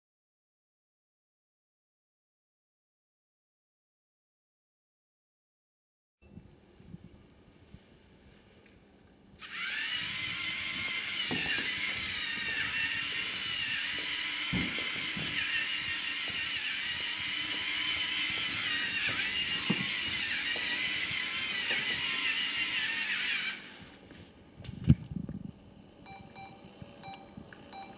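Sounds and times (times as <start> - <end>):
toy motors and gears whining: 9.4 - 24.0.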